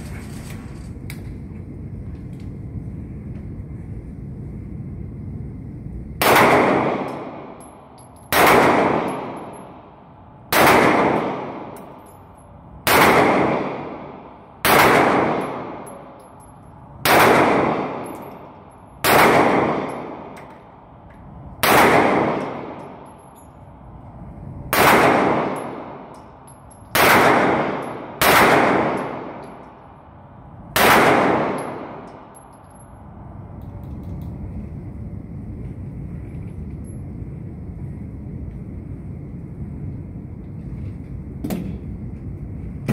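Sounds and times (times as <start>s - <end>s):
pistol shots echoing indoors: 6.2s - 9.9s, 10.5s - 11.9s, 12.8s - 16.3s, 17.0s - 18.2s, 19.0s - 20.4s, 21.6s - 23.1s, 24.7s - 26.2s, 26.9s - 29.8s, 30.7s - 32.4s.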